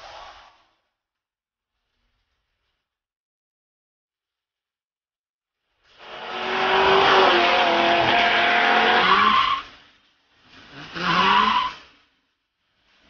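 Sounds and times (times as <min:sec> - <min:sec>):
wind and road noise: 0:05.6 - 0:13.0
car engine running hard: 0:06.0 - 0:09.4.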